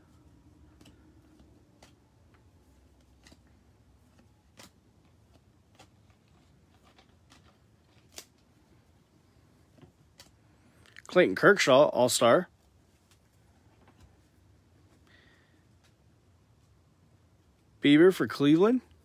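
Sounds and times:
trading cards clicking and snapping: 0:00.3 - 0:08.5.

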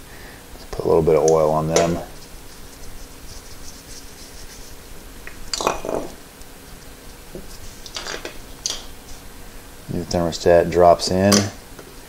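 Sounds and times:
faint steady hum: 0:00.0 - 0:12.0
rub on metal housing: 0:01.6 - 0:04.9, 0:07.0 - 0:07.9.

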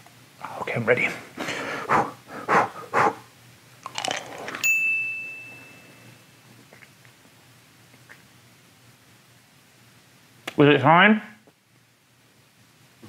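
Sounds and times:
bell ding sound effect: 0:04.6 - 0:06.1.

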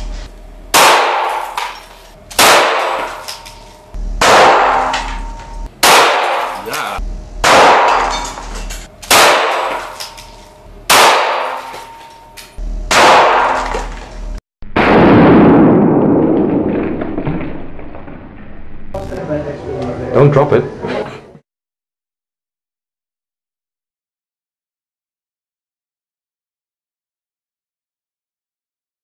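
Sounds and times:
pistol shots echoing: 0:00.8 - 0:01.6, 0:02.3 - 0:03.4, 0:04.2 - 0:06.8, 0:07.4 - 0:08.2, 0:09.1 - 0:10.1, 0:10.9 - 0:11.9, 0:12.9 - 0:13.8.

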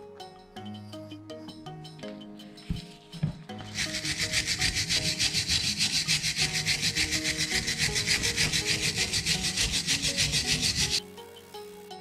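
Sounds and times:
scrubbing rusty steel: 0:03.6 - 0:11.0.

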